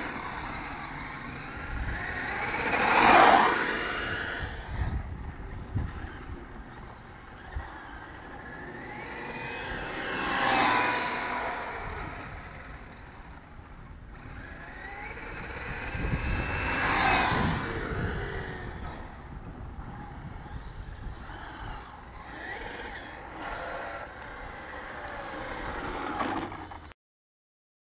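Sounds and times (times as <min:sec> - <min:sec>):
electric motor whining: 0:00.0 - 0:26.9
tyres and wind rumble: 0:00.0 - 0:26.9.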